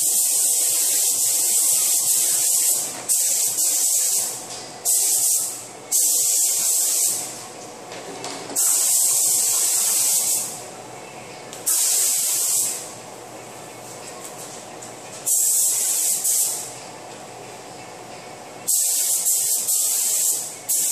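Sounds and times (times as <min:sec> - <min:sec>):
spray gun hissing: 0:00.0 - 0:07.3, 0:08.6 - 0:10.6, 0:11.7 - 0:12.9, 0:15.3 - 0:16.7, 0:18.7 - 0:20.9.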